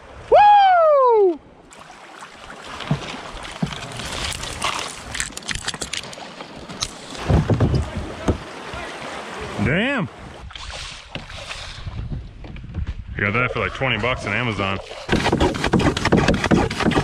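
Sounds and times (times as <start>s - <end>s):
person shouting: 0.3s - 1.4s
paddle strokes: 1.7s - 12.6s, 13.2s - 17.0s
branches scraping against boat: 2.7s - 9.1s, 10.6s - 17.0s
river water rushing: 5.9s - 10.4s.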